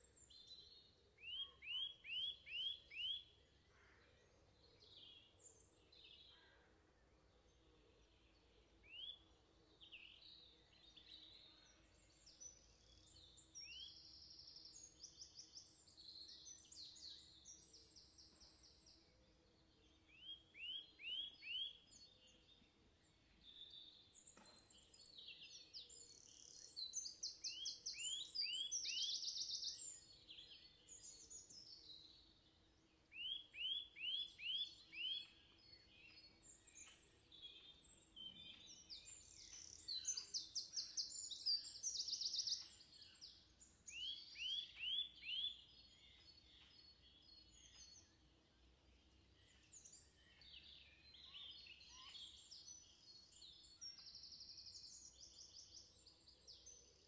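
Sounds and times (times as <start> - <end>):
songbirds chirping and trilling: 0.0 - 57.0.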